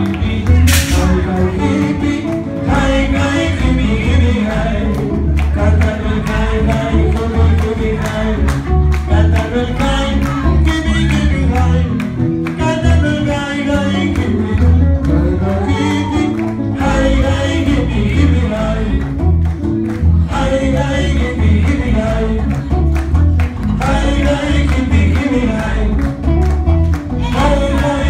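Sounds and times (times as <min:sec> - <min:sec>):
person singing: 0:00.0 - 0:19.4, 0:20.0 - 0:28.0
electric guitar: 0:00.0 - 0:28.0
congas: 0:00.3 - 0:28.0
driving percussion beat: 0:00.6 - 0:02.2.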